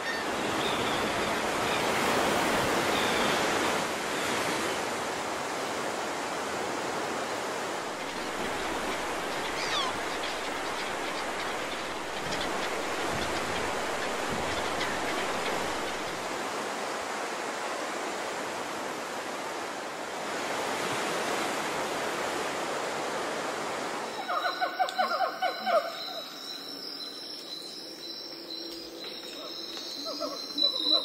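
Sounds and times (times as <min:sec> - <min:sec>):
wind: 0:00.0 - 0:31.0
birds chattering calls: 0:08.0 - 0:16.3.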